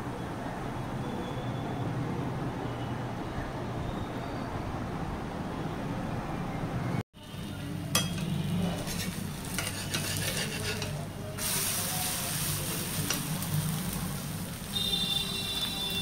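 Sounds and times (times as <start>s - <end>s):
batter sizzling in oil: 7.2s - 16.0s
metal spatula scraping a pan: 8.0s - 11.5s.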